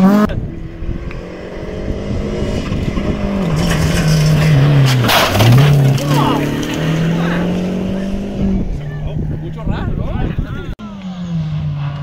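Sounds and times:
rally car engine approaching: 0.0s - 12.0s.

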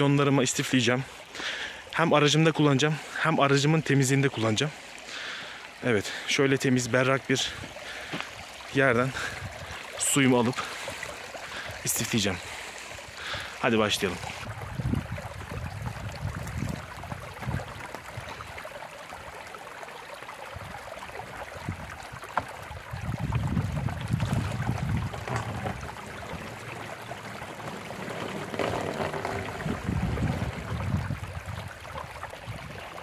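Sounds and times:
spring trickling over stones: 4.4s - 14.5s, 24.1s - 31.0s
water poured into plastic bottle: 20.5s - 32.8s.

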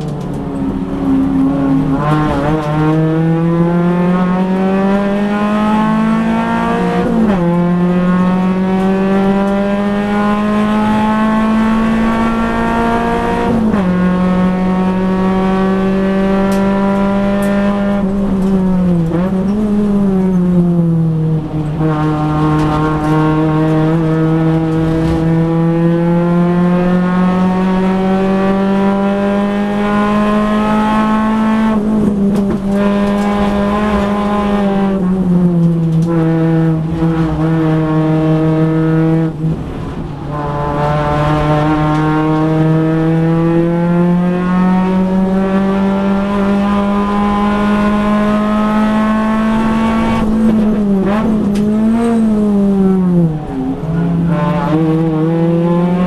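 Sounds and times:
race car engine accelerating: 0.0s - 56.0s.

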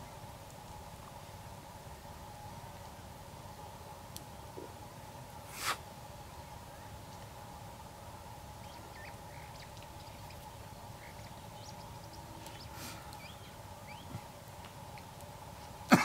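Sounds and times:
low background hum: 0.0s - 16.0s
faint bird chirps and whistles: 8.6s - 10.4s, 11.0s - 14.2s.

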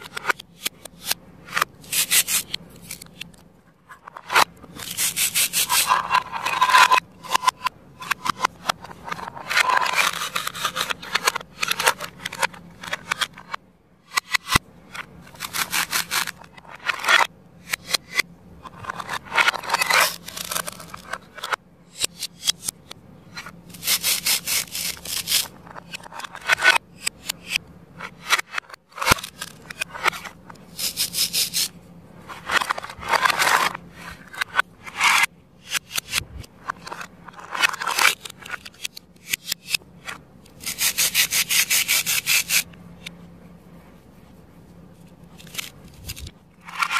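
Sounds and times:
plastic toy knife sawing plastic: 0.1s - 3.2s, 4.2s - 14.6s, 15.3s - 21.2s, 23.7s - 31.7s, 40.6s - 42.7s.

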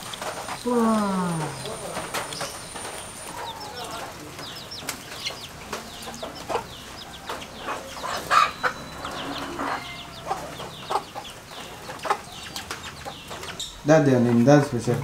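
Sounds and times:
chicks peeping: 0.0s - 15.0s
hen clucking: 0.8s - 15.0s.

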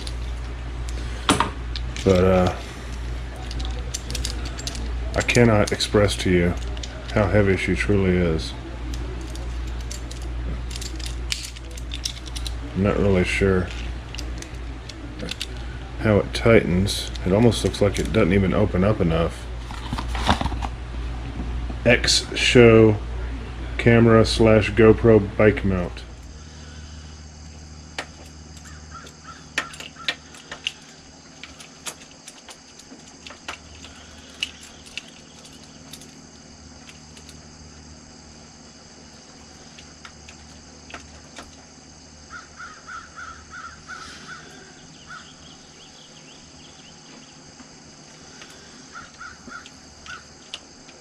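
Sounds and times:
high insect drone: 0.0s - 51.0s
crows cawing: 28.6s - 30.6s, 42.3s - 45.5s, 48.3s - 50.4s.

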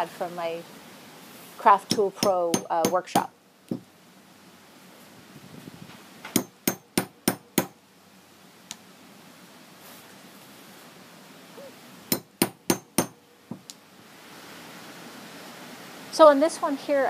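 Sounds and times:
hammer striking hole punch: 1.9s - 3.8s, 6.3s - 7.8s, 12.1s - 13.2s.

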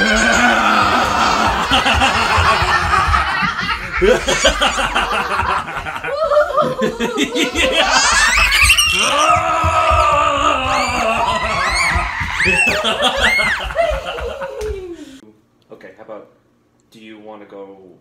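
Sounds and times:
toddler girl laughing: 0.0s - 9.1s, 10.7s - 15.1s.

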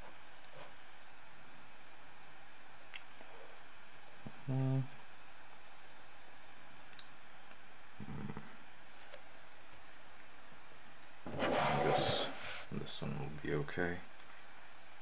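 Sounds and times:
paper rustling: 11.3s - 12.6s
steady hiss: 11.3s - 14.0s.

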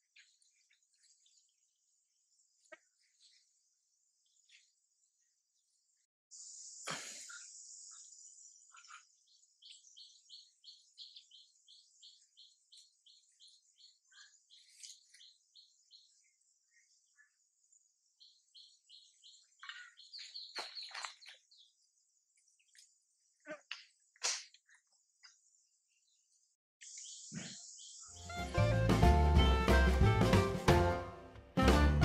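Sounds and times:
sharp bird calls: 18.2s - 21.8s.

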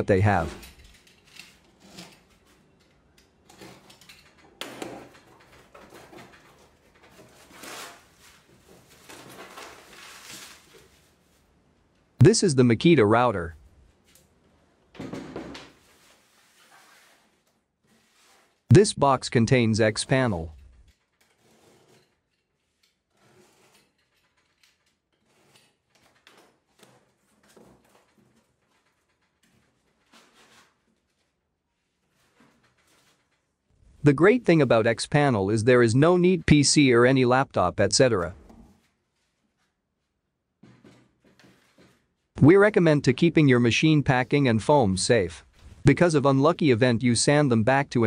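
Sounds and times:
cardboard and tape rustling: 5.1s - 11.5s, 40.6s - 42.3s.

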